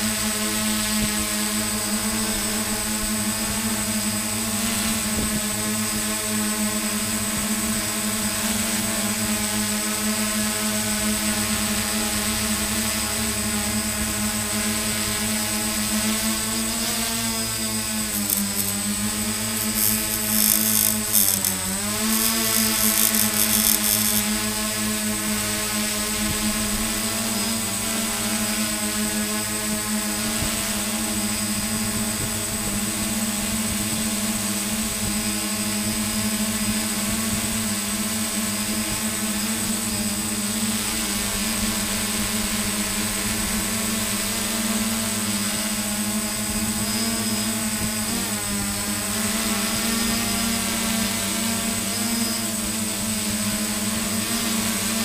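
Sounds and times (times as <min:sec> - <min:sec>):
thin high whine: 0:00.0 - 0:55.0
drone propellers humming: 0:00.1 - 0:55.0
high hiss: 0:12.4 - 0:24.7.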